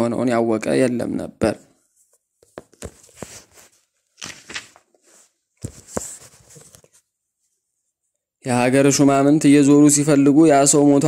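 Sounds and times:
paper rustling: 0:01.9 - 0:07.6.

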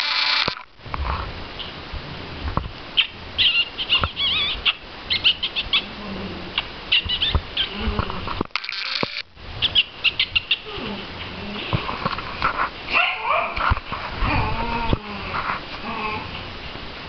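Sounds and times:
puppies squeaking and whimpering: 0:03.0 - 0:06.0, 0:06.6 - 0:07.9
small clicks and scuffling: 0:11.7 - 0:12.8.

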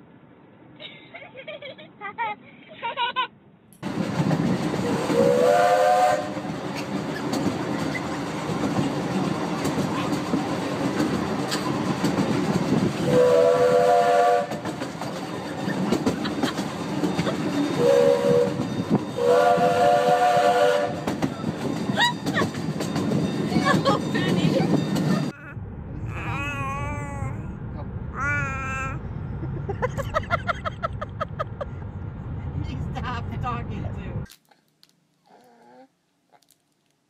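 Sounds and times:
train rumble and clatter: 0:03.8 - 0:34.3
train air horn: 0:04.9 - 0:06.5, 0:13.0 - 0:14.7, 0:17.8 - 0:18.6, 0:19.2 - 0:21.1.

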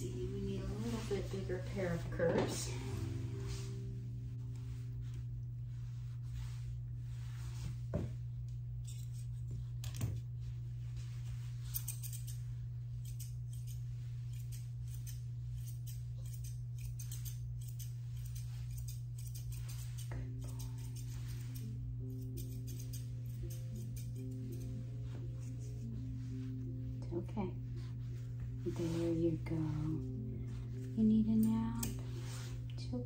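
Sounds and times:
shears snipping hair: 0:00.0 - 0:03.7, 0:08.5 - 0:10.3, 0:11.5 - 0:26.2, 0:28.6 - 0:32.8
low hum: 0:00.0 - 0:33.0.

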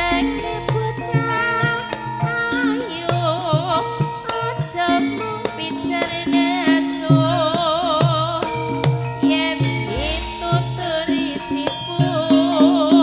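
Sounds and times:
woman singing ornamented lines: 0:00.0 - 0:08.6, 0:09.2 - 0:13.0
sustained metallophone tones: 0:00.0 - 0:13.0
hand-drum strokes: 0:07.1 - 0:13.0.

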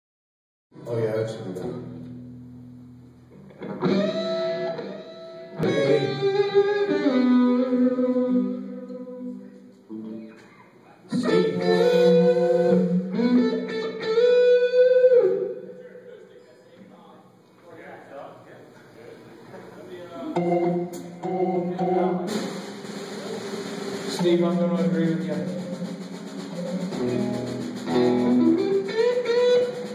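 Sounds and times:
electric guitars ringing chords: 0:01.6 - 0:10.2, 0:11.1 - 0:15.8, 0:20.3 - 0:23.1, 0:26.8 - 0:29.9.

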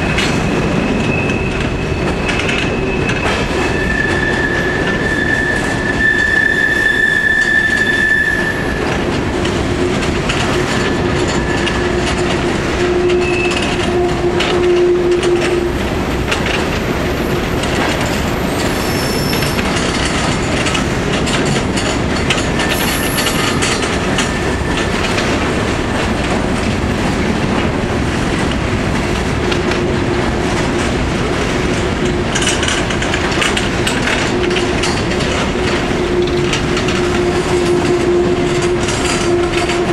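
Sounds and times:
train wheels squealing: 0:00.0 - 0:09.0, 0:10.5 - 0:16.1, 0:18.2 - 0:20.1, 0:22.3 - 0:25.6, 0:34.4 - 0:39.9
train wheels rumbling on rails: 0:00.0 - 0:39.9.

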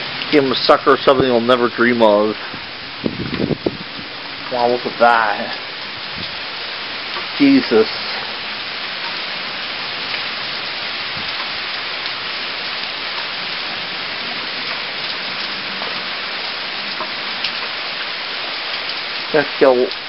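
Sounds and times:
heavy rain hissing: 0:00.0 - 0:20.0
faint drip ticks: 0:06.2 - 0:08.4, 0:16.9 - 0:18.1.

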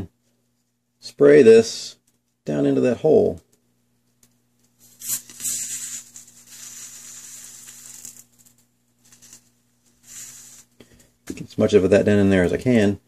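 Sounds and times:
aerosol can spraying hiss: 0:04.9 - 0:08.4, 0:09.0 - 0:10.7.

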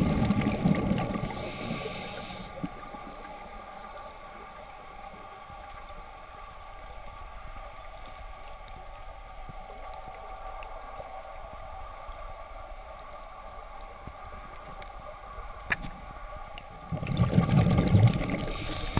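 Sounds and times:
muffled underwater hum: 0:00.2 - 0:06.5.

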